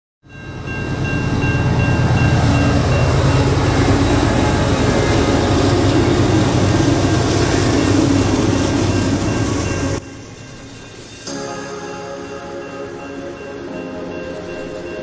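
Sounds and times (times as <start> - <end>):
locomotive engine rumble: 0.4 - 10.4.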